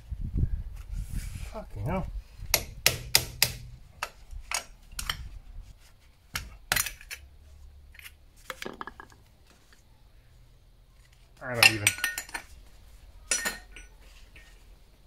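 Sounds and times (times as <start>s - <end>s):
metal hand tools clinking: 11.4s - 12.6s, 13.3s - 14.6s.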